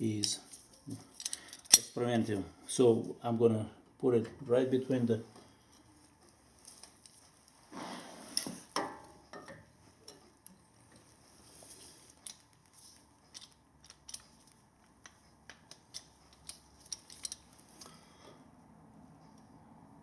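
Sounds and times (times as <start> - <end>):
light metallic clicks and clinks: 0.2 - 2.0, 13.3 - 18.0.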